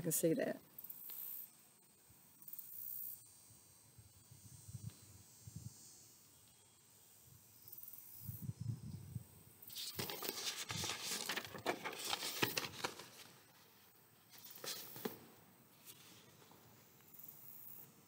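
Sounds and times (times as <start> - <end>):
printer paper rustling: 9.8 - 13.4, 14.4 - 15.2.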